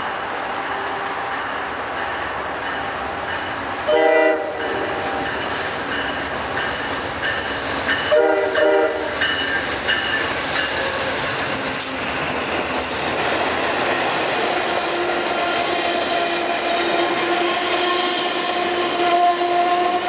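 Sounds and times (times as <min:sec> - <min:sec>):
train rumble and wheel clatter: 0:00.0 - 0:20.0
train horn toot: 0:03.9 - 0:04.8, 0:08.1 - 0:09.1, 0:14.9 - 0:20.0.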